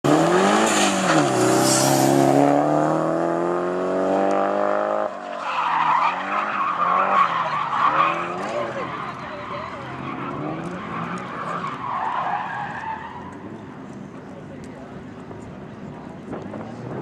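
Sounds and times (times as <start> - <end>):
car engine revving high: 0.1 - 5.2
tyres squealing and skidding: 0.3 - 2.3, 5.1 - 13.8.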